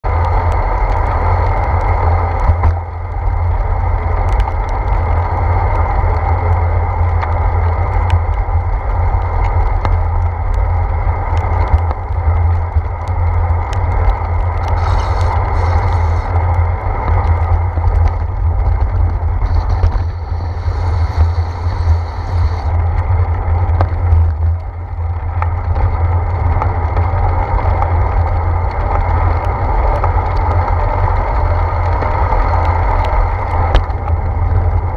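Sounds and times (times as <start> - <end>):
wind and road rumble: 0.0 - 34.9
light ticks: 0.2 - 34.8
high hiss: 14.8 - 16.3.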